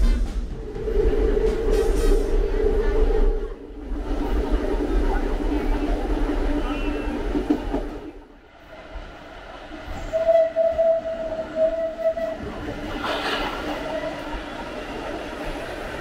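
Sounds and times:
subway train running: 0:00.0 - 0:16.0
subway train high note: 0:09.7 - 0:14.9.

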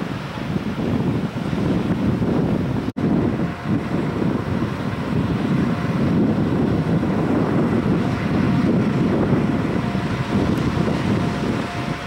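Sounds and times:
wind buffeting microphone: 0:00.0 - 0:12.0
diesel locomotive idling: 0:03.0 - 0:12.0.

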